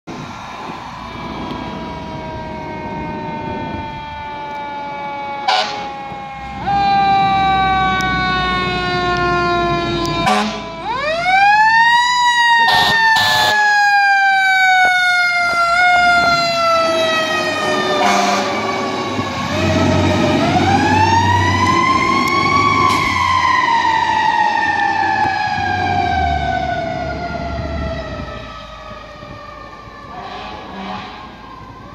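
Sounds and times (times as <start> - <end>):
fire engine siren wailing: 0.1 - 31.9
truck engine rumbling: 0.1 - 31.9
short sharp horn blasts: 10.3 - 10.6, 30.2 - 31.2.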